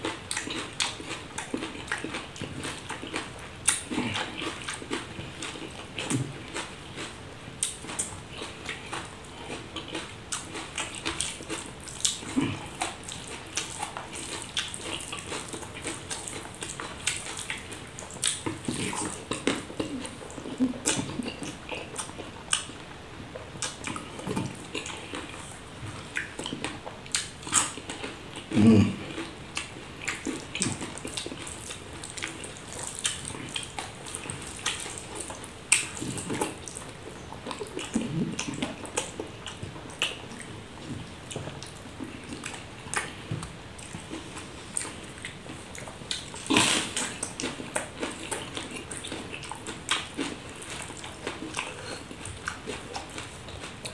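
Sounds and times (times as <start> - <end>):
lip-smacking and chewing: 0.0 - 53.9
deep mouth sound: 28.5 - 29.1.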